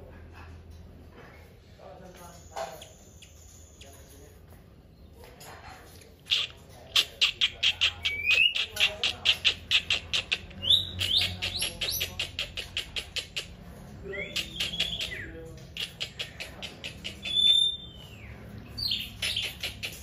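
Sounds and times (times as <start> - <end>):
bird chattering calls: 6.3 - 20.0.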